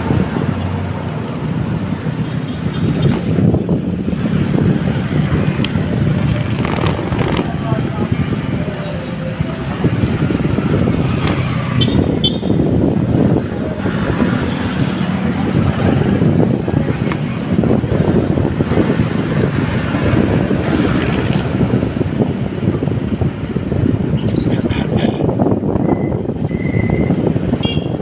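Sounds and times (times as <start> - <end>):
motorcycle and car engines: 0.0 - 28.0
wind noise on microphone: 0.0 - 28.0.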